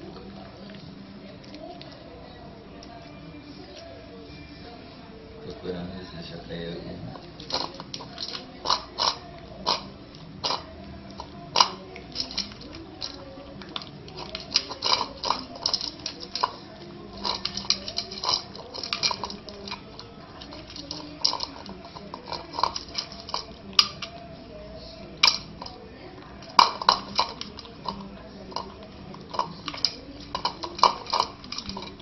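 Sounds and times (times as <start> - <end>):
puppy crunching dry kibble: 7.1 - 32.0.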